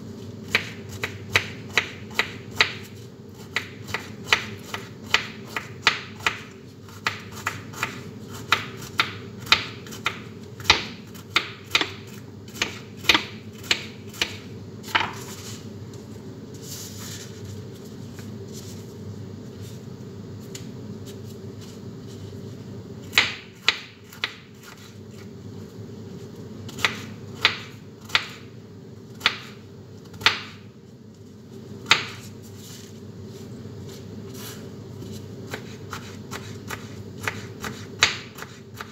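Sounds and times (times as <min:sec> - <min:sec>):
steady hum: 0:00.0 - 0:38.9
knife chopping on cutting board: 0:00.5 - 0:15.3, 0:23.1 - 0:24.9, 0:31.8 - 0:32.3, 0:35.5 - 0:38.9.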